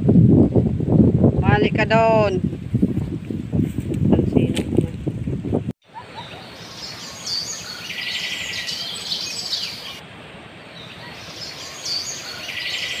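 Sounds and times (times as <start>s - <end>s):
small birds chirping: 5.8s - 10.0s, 10.6s - 13.0s
trilled bird call: 5.9s - 10.0s, 10.8s - 13.0s.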